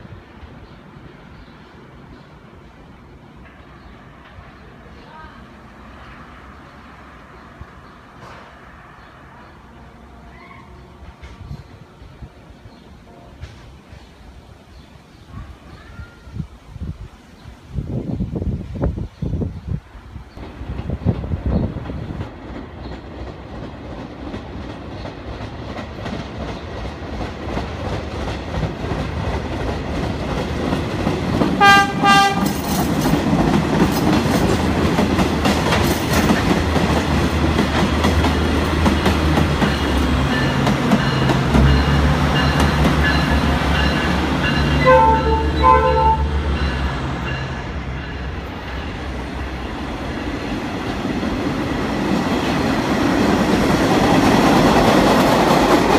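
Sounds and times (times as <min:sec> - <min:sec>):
wheels clicking over rail joints: 0:20.4 - 0:44.8
locomotive horn blasts: 0:31.6 - 0:32.6, 0:44.8 - 0:46.5.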